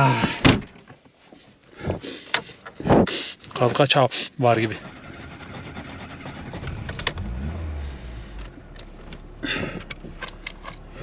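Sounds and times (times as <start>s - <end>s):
car engine starting and idling: 4.4s - 11.0s.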